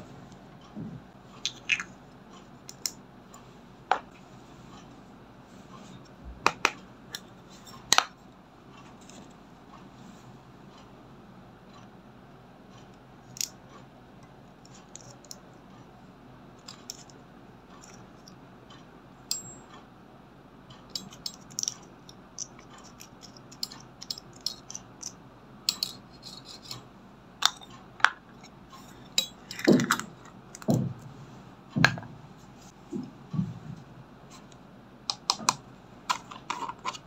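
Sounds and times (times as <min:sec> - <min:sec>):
plastic spatula scraping makeup: 0:36.1 - 0:37.0.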